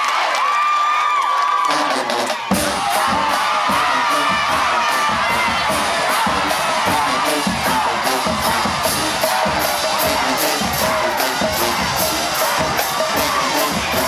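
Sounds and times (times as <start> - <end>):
crowd cheering: 0.0 - 14.0
marching band playing: 1.6 - 14.0.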